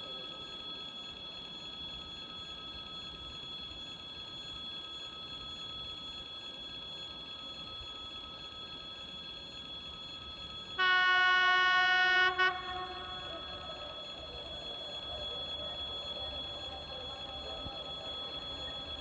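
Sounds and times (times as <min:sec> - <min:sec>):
locomotive horn blast: 0:10.8 - 0:13.9.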